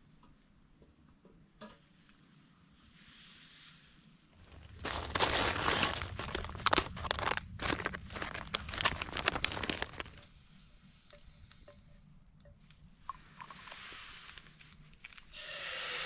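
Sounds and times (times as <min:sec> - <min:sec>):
crinkling and rustling: 0:04.3 - 0:10.4, 0:11.1 - 0:15.4.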